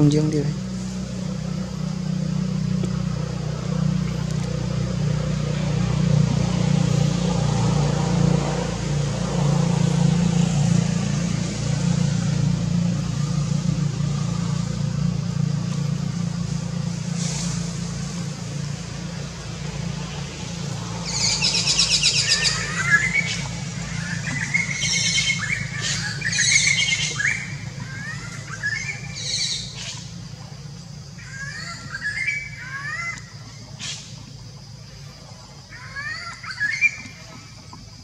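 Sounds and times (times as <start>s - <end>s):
passing traffic hum: 0.0s - 38.0s
birds chirping and trilling: 19.8s - 38.0s.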